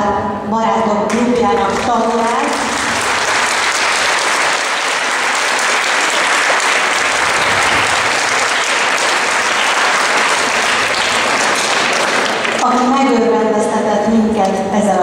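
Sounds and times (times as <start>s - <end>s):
crowd applause: 1.7s - 12.9s.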